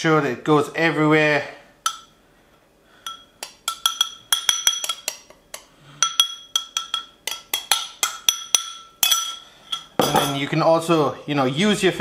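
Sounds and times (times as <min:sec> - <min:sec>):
metal spoon clinking on glass bowl: 0:03.0 - 0:10.4.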